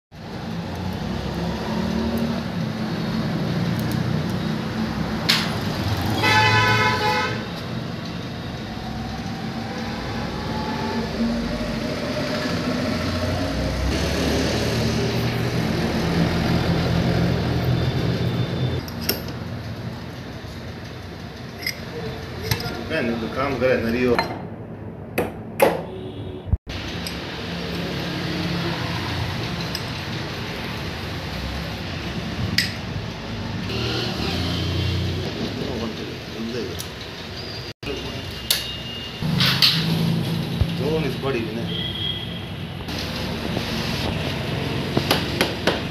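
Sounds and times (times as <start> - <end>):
vehicle horn honking: 6.1 - 7.6, 41.7 - 42.5
vehicle engines running: 7.4 - 25.1, 26.7 - 38.4, 42.4 - 45.9.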